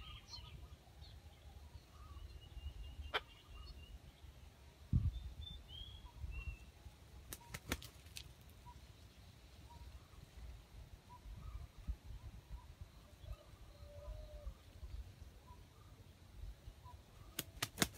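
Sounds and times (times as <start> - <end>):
faint bird chirps: 0.0 - 4.3, 8.6 - 17.6.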